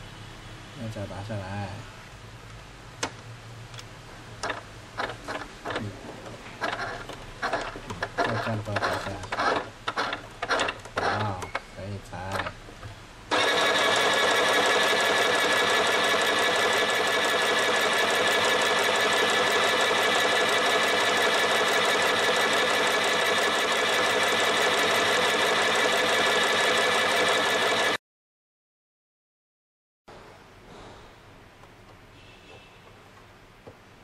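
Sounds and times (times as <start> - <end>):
sewing machine stitching: 4.4 - 5.9, 6.6 - 11.6, 12.3 - 12.5, 13.3 - 28.0.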